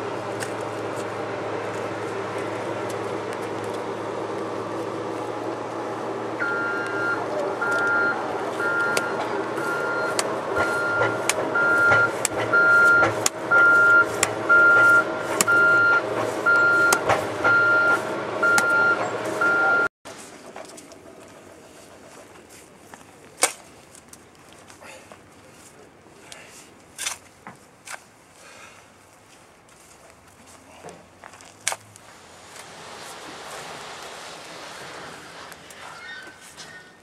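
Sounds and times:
truck engine running: 0:00.0 - 0:23.3, 0:32.0 - 0:36.7
truck backup alarm beeping: 0:06.0 - 0:19.9.

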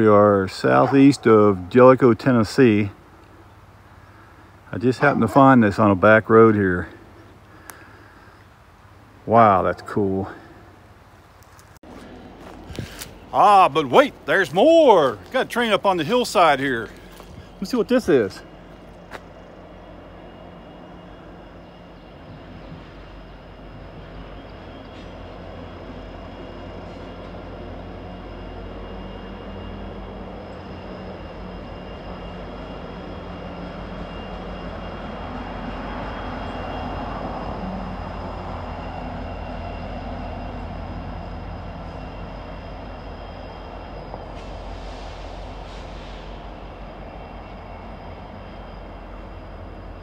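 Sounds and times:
locomotive engine drone: 0:00.0 - 0:50.0.

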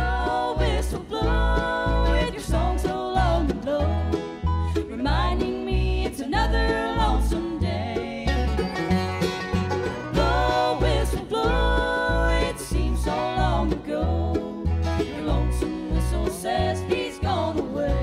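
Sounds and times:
women singing in harmony: 0:00.0 - 0:08.7, 0:10.1 - 0:18.0
banjo picking: 0:00.0 - 0:18.0
fiddle: 0:00.0 - 0:18.0
upright bass: 0:00.0 - 0:18.0.

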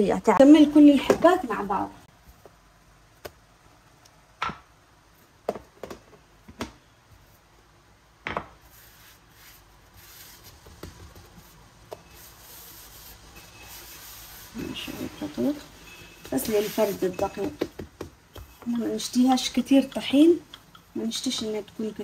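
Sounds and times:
dough knocking on work surface: 0:17.2 - 0:18.7.

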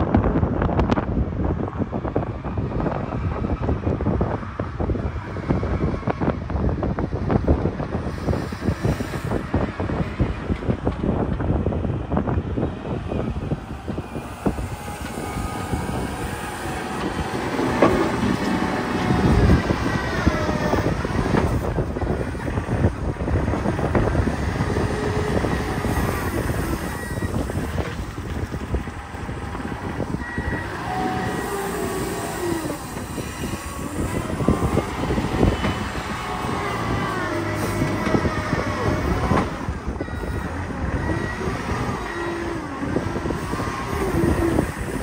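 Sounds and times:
diesel engine revving under load: 0:04.8 - 0:45.0
hydraulic whine: 0:05.0 - 0:45.0
loader bucket digging into dirt: 0:14.9 - 0:21.8.

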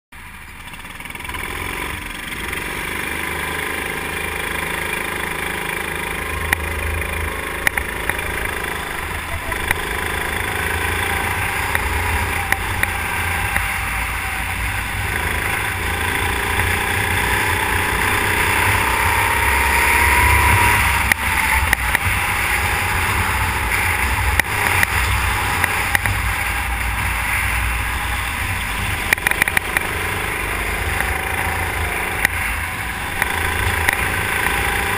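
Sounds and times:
go-kart engine at racing speed: 0:00.2 - 0:34.9
sharp clicks: 0:07.6 - 0:08.6.

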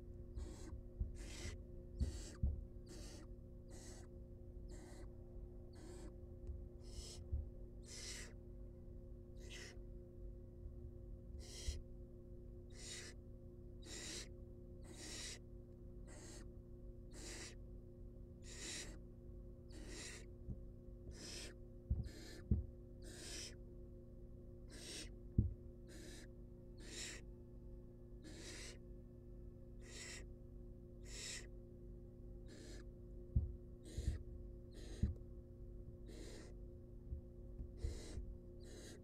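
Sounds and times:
steady electrical hum: 0:00.0 - 0:39.0
owl nestlings hissing calls: 0:00.3 - 0:04.1, 0:04.7 - 0:05.1, 0:05.7 - 0:06.2, 0:06.8 - 0:07.2, 0:07.8 - 0:08.4, 0:09.4 - 0:09.8, 0:11.4 - 0:11.8, 0:12.7 - 0:13.2, 0:13.8 - 0:15.4, 0:16.0 - 0:16.5, 0:17.1 - 0:17.6, 0:18.4 - 0:19.0, 0:19.7 - 0:20.3, 0:21.1 - 0:23.6, 0:24.7 - 0:25.2, 0:25.9 - 0:27.3, 0:28.2 - 0:28.8, 0:29.8 - 0:30.3, 0:31.0 - 0:31.5, 0:32.4 - 0:32.9, 0:33.8 - 0:35.1, 0:36.0 - 0:36.6, 0:37.8 - 0:39.0
low thumps in wooden nest box: 0:00.4 - 0:02.7.

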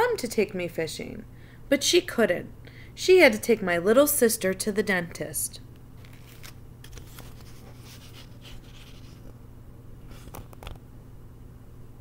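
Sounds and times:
picture book rustling: 0:06.0 - 0:09.4, 0:10.1 - 0:10.8.

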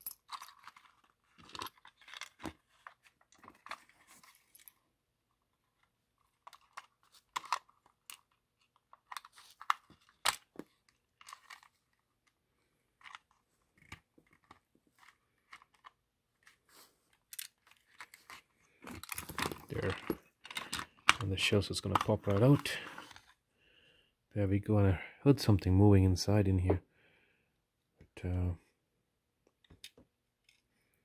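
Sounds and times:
plastic clicks and creaks: 0:17.1 - 0:23.3.

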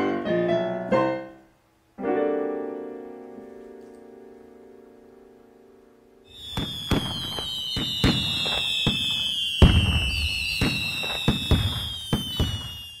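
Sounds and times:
firework bangs: 0:06.3 - 0:13.0
whistling firework rockets: 0:06.3 - 0:13.0.

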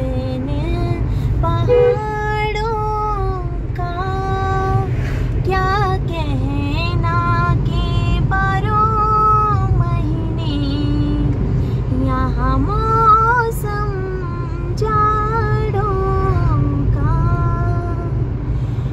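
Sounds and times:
car road noise: 0:00.0 - 0:18.9.

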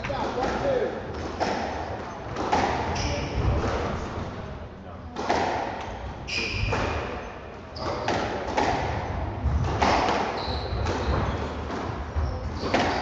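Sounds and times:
shoes squeaking on wooden floor: 0:06.2 - 0:08.4, 0:09.8 - 0:13.0
squash ball cracking off walls: 0:07.9 - 0:11.9.

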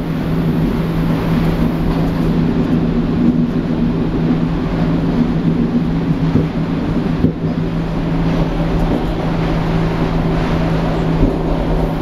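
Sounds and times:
constant low drone: 0:00.0 - 0:12.0
electric train rumble: 0:00.0 - 0:12.0.

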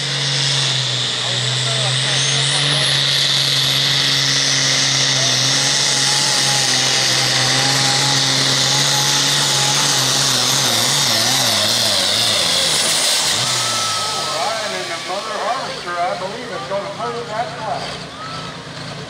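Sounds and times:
high whine: 0:00.0 - 0:17.7
diesel tractor engine under load: 0:00.0 - 0:19.0.

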